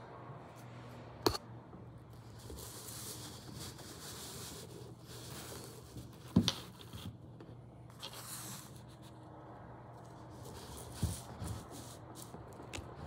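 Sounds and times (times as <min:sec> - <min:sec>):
rustling and scraping handling noise: 0:02.0 - 0:13.0.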